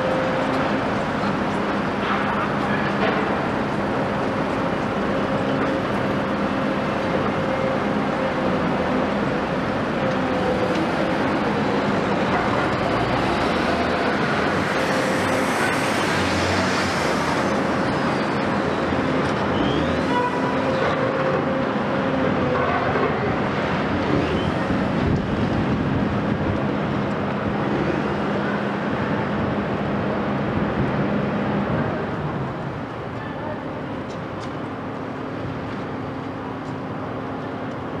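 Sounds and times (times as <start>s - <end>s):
excavator diesel engine and hydraulics: 0.0s - 38.0s.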